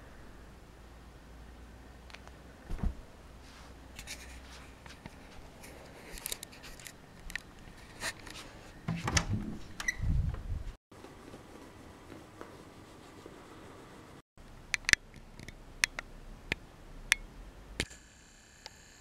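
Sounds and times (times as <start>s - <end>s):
light clicks and rustles: 4.0s - 9.3s.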